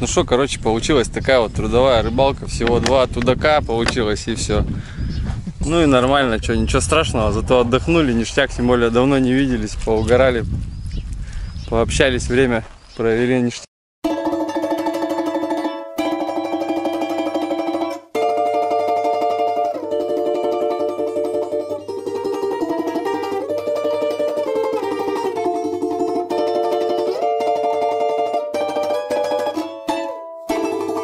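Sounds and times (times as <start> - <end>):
fast-picked plucked string melody: 14.0 - 31.0.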